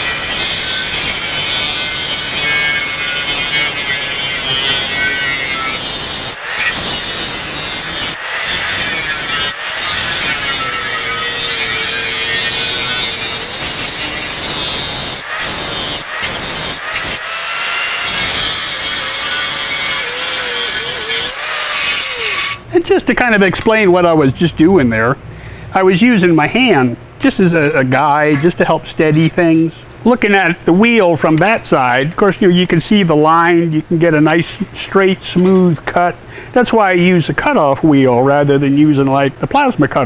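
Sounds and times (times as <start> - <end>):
angle grinder cutting steel: 0.0 - 22.7.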